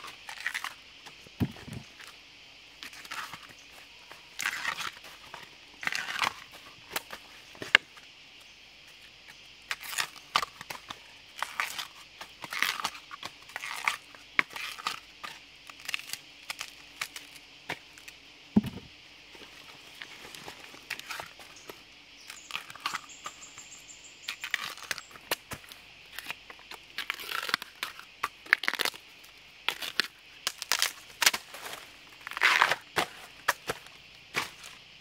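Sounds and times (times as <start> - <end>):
bamboo husk tearing: 0.2 - 0.8, 4.4 - 7.8, 9.7 - 18.9, 24.3 - 29.0, 29.7 - 33.8
dull knock: 18.6 - 18.9.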